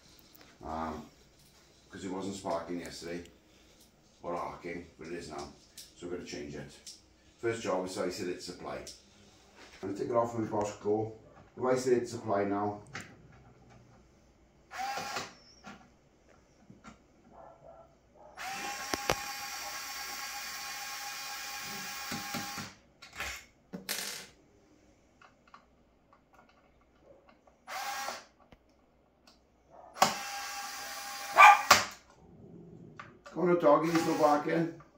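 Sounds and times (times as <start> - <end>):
electric screwdriver motor running: 14.8 - 15.3, 18.4 - 22.7, 27.7 - 28.3, 30.0 - 31.7, 33.8 - 34.4.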